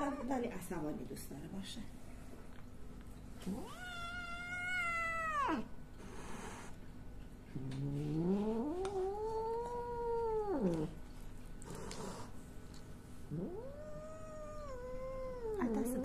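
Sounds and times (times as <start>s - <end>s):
cat yowling angrily: 3.6s - 5.7s.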